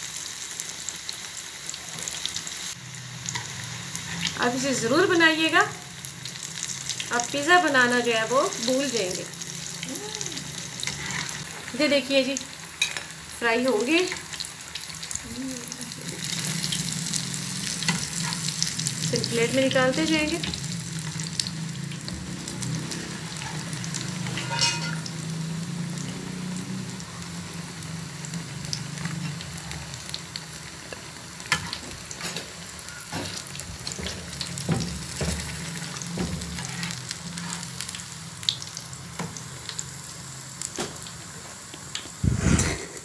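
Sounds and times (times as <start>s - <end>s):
food deep-frying in oil: 0.0s - 43.0s
spatula knocking and scraping pan: 24.4s - 25.0s, 33.1s - 37.0s.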